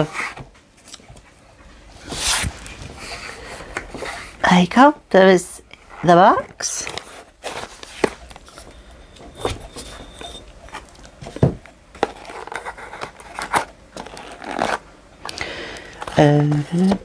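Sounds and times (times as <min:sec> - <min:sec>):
cardboard scraping and rustling: 0:02.0 - 0:04.3, 0:06.0 - 0:08.7, 0:09.4 - 0:14.8.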